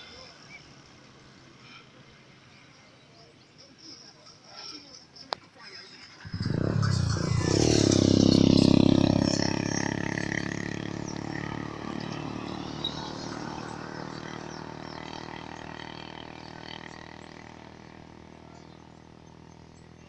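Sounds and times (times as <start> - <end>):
vehicle speeding past: 6.2 - 19.8.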